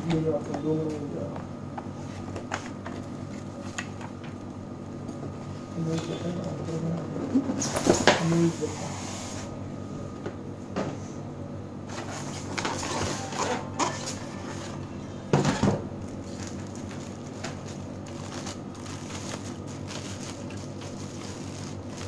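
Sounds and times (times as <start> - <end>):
plastic bags crinkling: 16.0 - 22.0.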